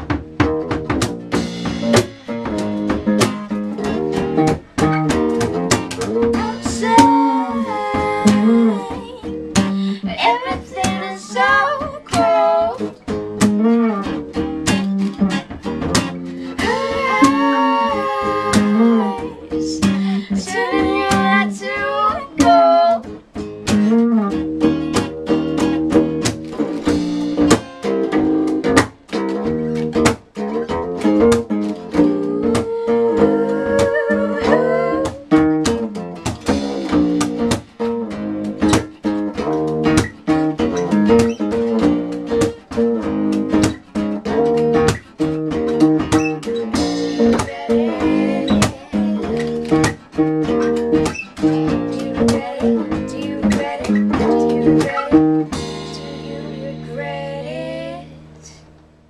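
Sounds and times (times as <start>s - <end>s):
acoustic guitar strummed and plucked: 0.0s - 59.0s
electric bass guitar: 0.0s - 59.0s
woman singing: 6.0s - 13.0s, 16.4s - 23.2s, 31.8s - 35.4s, 47.0s - 50.0s, 51.0s - 58.6s.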